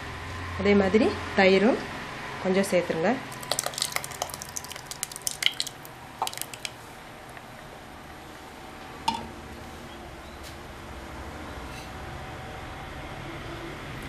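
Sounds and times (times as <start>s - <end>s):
curd plopping into pot: 3.3s - 6.8s.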